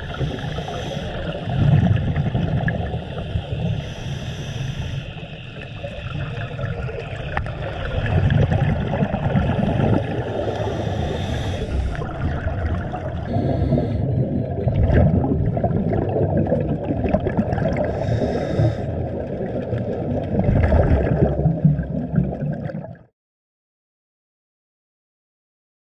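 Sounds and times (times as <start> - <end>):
bubbling exhalations underwater: 0.0 - 3.6, 5.6 - 23.1
regulator hissing inhalations: 0.1 - 1.4, 2.9 - 6.0, 9.6 - 12.0, 13.2 - 14.3, 17.9 - 18.9.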